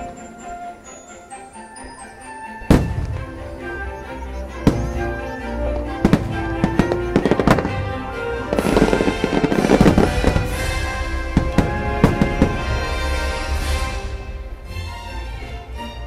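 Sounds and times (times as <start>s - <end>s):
fireworks bursting with bangs: 2.6s - 3.8s, 4.5s - 14.2s
fireworks crackling: 2.6s - 14.4s.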